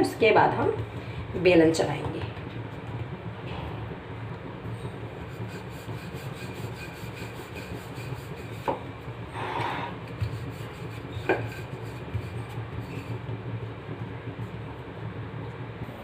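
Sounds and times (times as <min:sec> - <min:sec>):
rolling pin rubbing dough: 0:05.1 - 0:08.8, 0:09.4 - 0:13.4.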